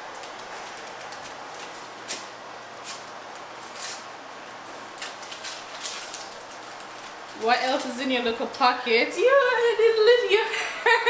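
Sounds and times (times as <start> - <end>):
tissue paper and gift bag rustling: 5.0 - 8.4.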